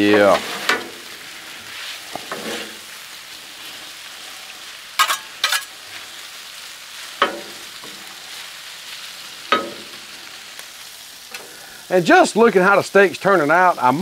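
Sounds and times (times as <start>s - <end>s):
food sizzling on griddle: 0.0s - 14.0s
metal spatulas clacking and scraping: 5.0s - 5.7s.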